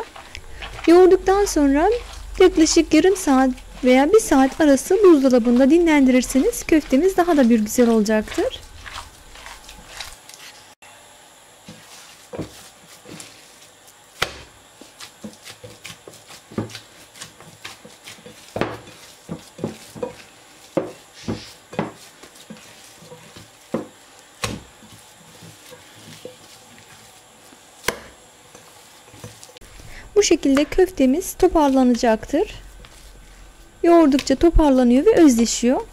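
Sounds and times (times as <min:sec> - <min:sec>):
hands kneading meat mixture: 0:00.0 - 0:10.7, 0:11.6 - 0:35.9.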